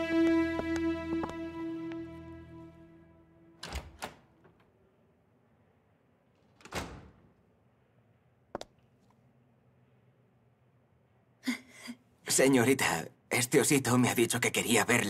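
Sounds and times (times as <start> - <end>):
background music: 0.0 - 3.6.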